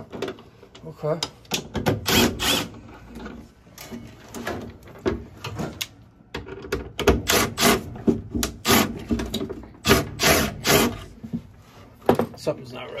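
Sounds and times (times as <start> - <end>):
metal and plastic parts clunking: 8.0 - 9.8.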